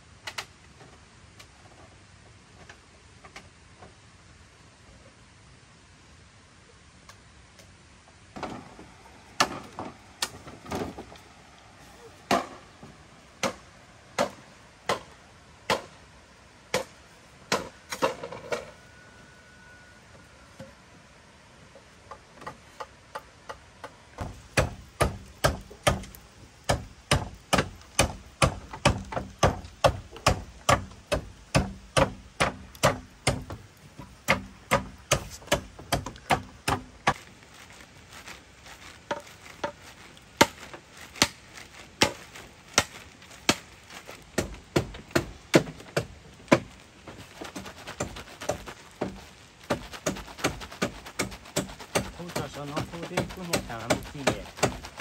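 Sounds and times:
sharp chopping strokes: 0:13.4 - 0:15.1, 0:15.7 - 0:16.0, 0:16.7 - 0:18.1, 0:24.2 - 0:37.2, 0:40.4 - 0:55.0.

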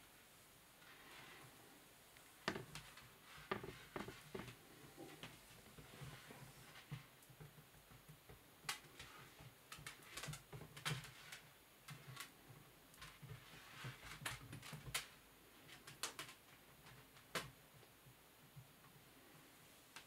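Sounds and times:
kitten paws tapping on wood: 0:02.4 - 0:09.0.

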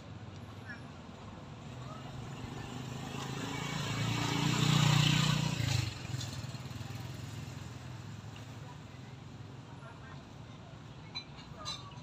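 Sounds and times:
vehicle engine passing by: 0:01.7 - 0:08.4.

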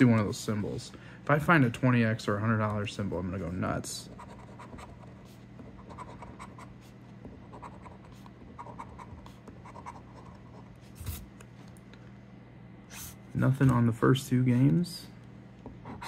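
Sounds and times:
low steady hum: 0:00.0 - 0:16.0
coin scratching lottery ticket: 0:04.1 - 0:06.8.

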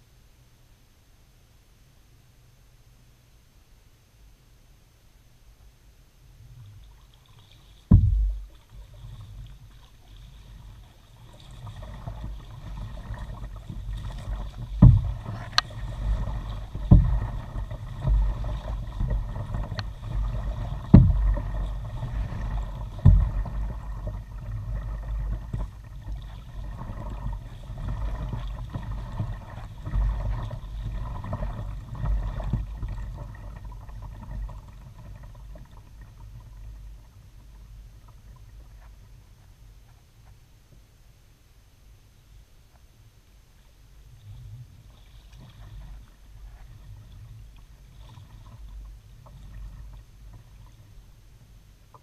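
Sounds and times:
water rumbling along hull: 0:00.0 - 0:52.0
sharp knocks: 0:07.9 - 0:08.5.

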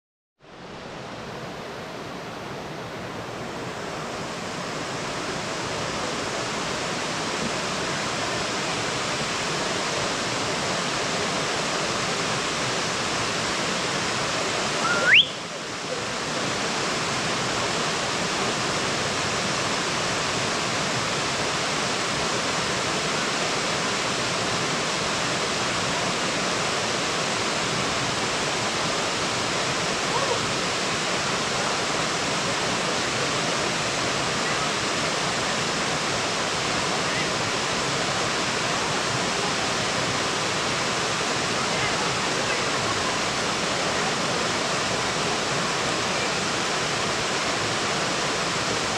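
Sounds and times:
water rushing over rocks: 0:00.5 - 0:48.9
loud rising whistle: 0:14.8 - 0:15.5.

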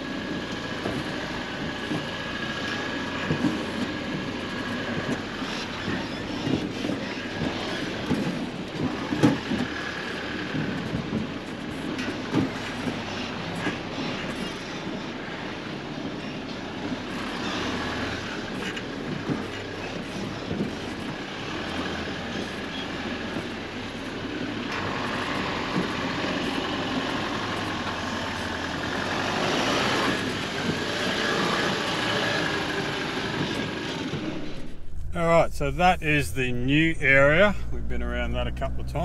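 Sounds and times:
vehicle engine running: 0:16.6 - 0:39.0.

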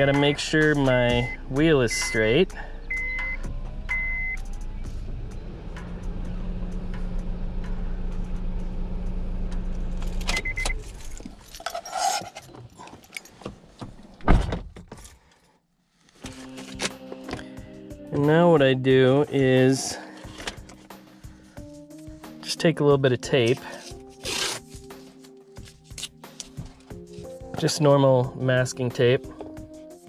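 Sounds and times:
car low hum: 0:00.0 - 0:11.8
keys jangling: 0:10.8 - 0:13.4.

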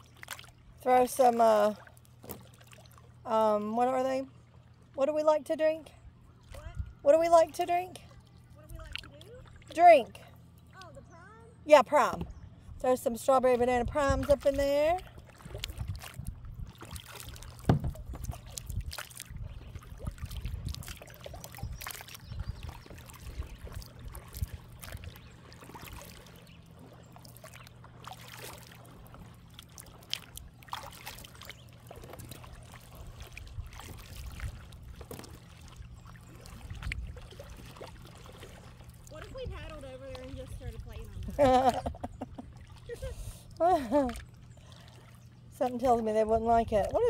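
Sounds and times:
low steady hum: 0:00.0 - 0:47.0
paddle splashing water: 0:00.0 - 0:47.0
paddle knocks: 0:16.7 - 0:18.4.

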